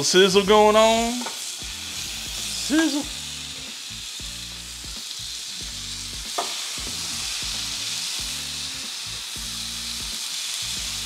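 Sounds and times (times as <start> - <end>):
bacon sizzling on griddle: 0.0 - 11.0
rhythmic background music: 0.0 - 11.0.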